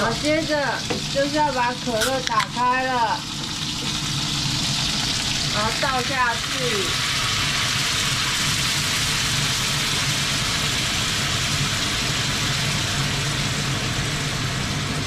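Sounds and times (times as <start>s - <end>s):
food sizzling and bubbling: 0.0s - 15.0s.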